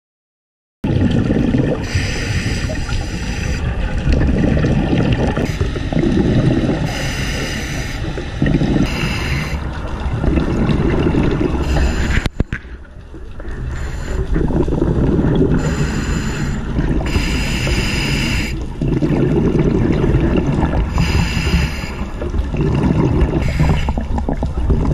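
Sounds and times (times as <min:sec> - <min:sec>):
bubbling underwater exhalations: 0:00.8 - 0:24.9
hissing regulator inhalations: 0:01.8 - 0:03.7, 0:06.8 - 0:09.7, 0:11.6 - 0:12.5, 0:15.6 - 0:18.7, 0:20.9 - 0:22.2, 0:23.4 - 0:24.0.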